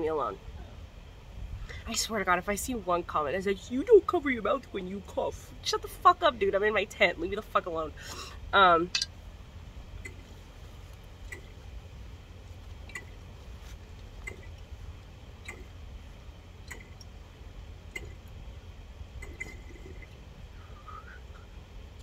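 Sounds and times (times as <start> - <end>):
low hum: 0.0 - 22.0
water bong bubbling: 15.4 - 15.8, 16.6 - 17.1, 17.8 - 18.3, 19.1 - 21.2.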